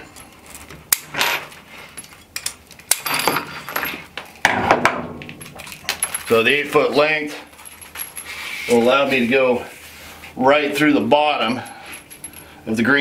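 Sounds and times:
metal hose fittings clinking: 0:05.3 - 0:09.2.

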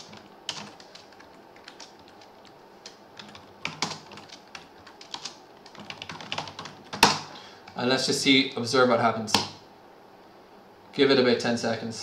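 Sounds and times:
computer keyboard typing: 0:00.0 - 0:07.3.

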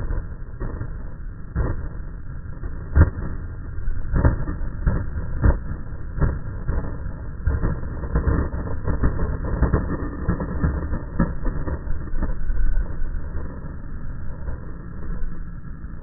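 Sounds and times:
skateboard clacks: 0:04.1 - 0:12.4.

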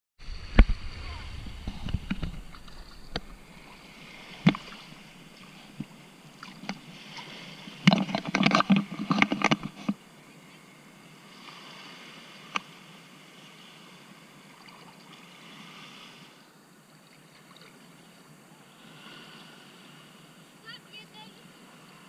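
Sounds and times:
water splashing: 0:00.2 - 0:10.0.

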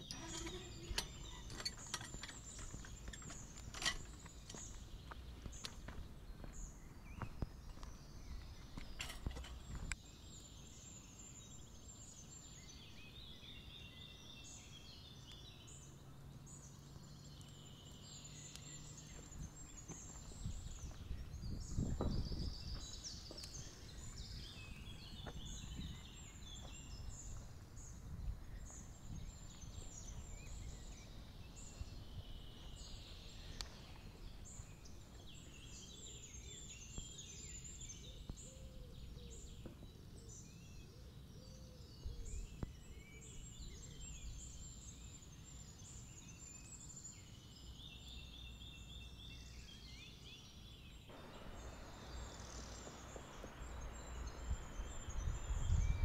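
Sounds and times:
songbirds chirping and singing: 0:00.0 - 0:56.0
footsteps on dirt path: 0:00.2 - 0:09.9, 0:19.1 - 0:27.8.

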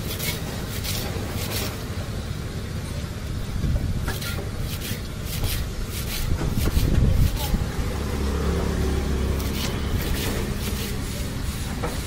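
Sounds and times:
low traffic rumble: 0:00.0 - 0:12.0
knife chopping on wooden board: 0:04.0 - 0:07.5.

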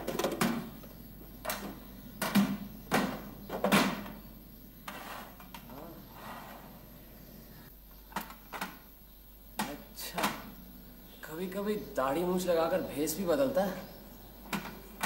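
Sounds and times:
knocks in metal trunk: 0:01.4 - 0:04.2.

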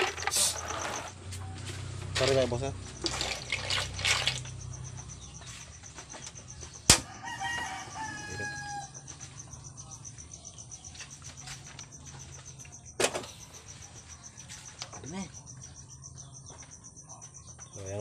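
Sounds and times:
crickets chirring: 0:00.0 - 0:18.0
rooster crowing: 0:06.5 - 0:09.3.

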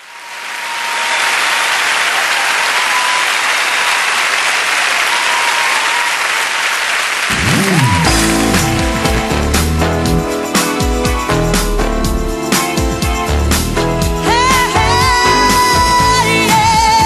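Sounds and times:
audience applauding: 0:00.0 - 0:13.1.

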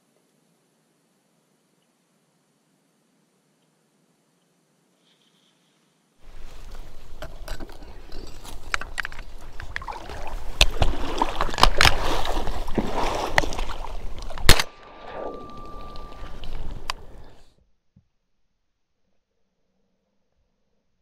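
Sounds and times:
rustling through dry reeds: 0:05.0 - 0:14.5
shotgun shot: 0:14.5 - 0:16.2.

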